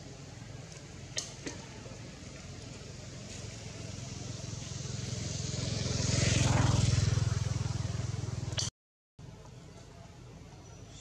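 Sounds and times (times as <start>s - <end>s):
vehicle engine droning: 0.0s - 11.0s.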